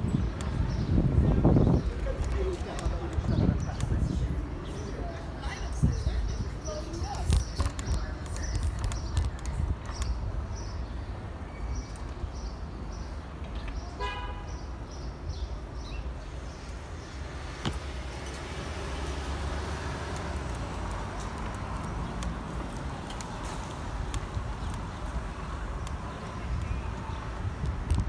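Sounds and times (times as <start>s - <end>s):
wind on microphone: 0.0s - 4.8s, 5.4s - 10.8s, 20.2s - 28.0s
city traffic: 0.0s - 28.0s
car horn toot: 14.0s - 14.5s.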